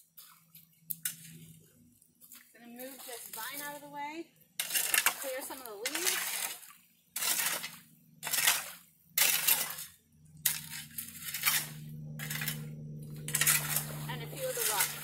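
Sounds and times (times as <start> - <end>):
shovel scraping wet soil: 4.6 - 12.6, 13.2 - 15.0.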